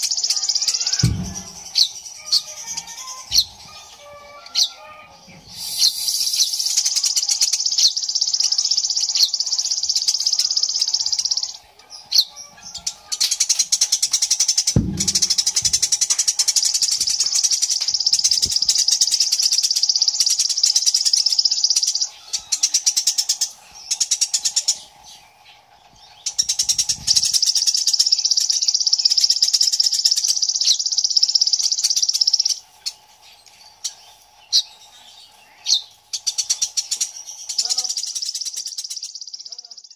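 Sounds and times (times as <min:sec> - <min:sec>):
sparrow singing rolling trills: 0:00.0 - 0:39.9
low thump: 0:01.0 - 0:01.9, 0:14.8 - 0:16.0.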